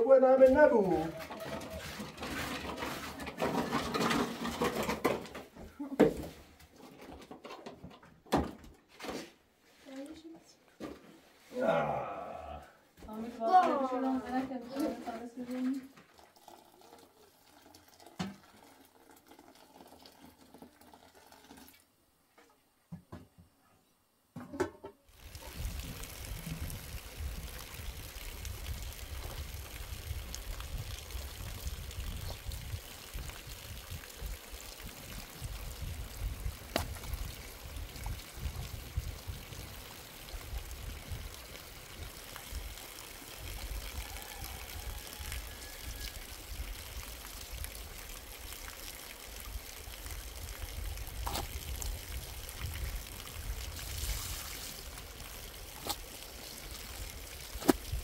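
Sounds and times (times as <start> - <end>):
running water rushing: 25.1 - 58.0.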